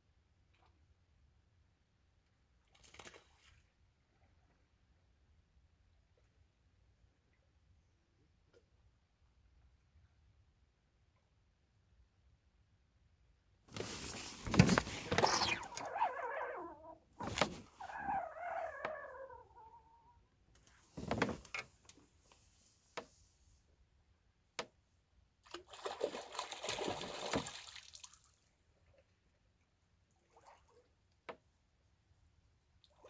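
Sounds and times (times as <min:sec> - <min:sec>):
water splashing and sloshing: 0:13.8 - 0:19.7, 0:25.4 - 0:29.0, 0:30.2 - 0:31.0.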